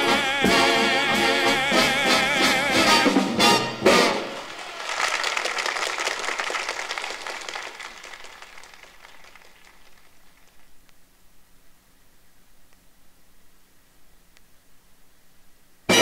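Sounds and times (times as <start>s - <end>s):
big band music: 0.0s - 4.6s
audience applauding: 4.0s - 10.7s.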